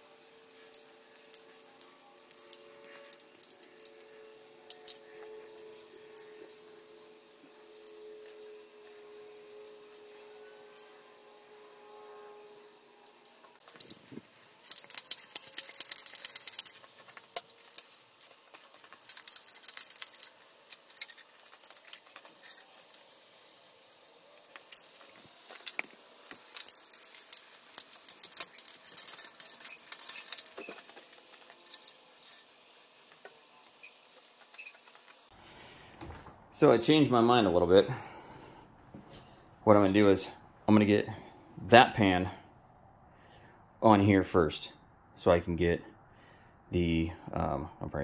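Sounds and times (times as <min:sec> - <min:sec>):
metal tools clinking: 0:00.3 - 0:06.7, 0:13.0 - 0:35.3
ratchet wrench clicking: 0:13.0 - 0:23.0, 0:23.8 - 0:32.4.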